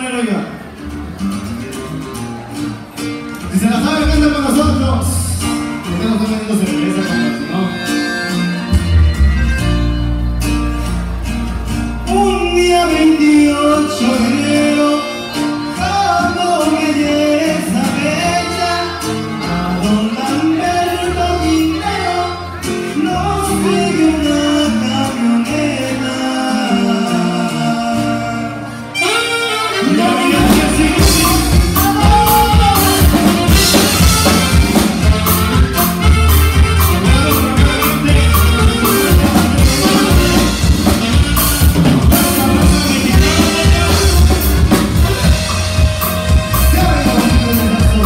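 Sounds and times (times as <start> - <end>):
live band playing: 0.0 - 48.0
button accordion: 2.7 - 48.0
man singing: 3.5 - 8.1, 12.0 - 48.0
saxophone: 26.7 - 48.0.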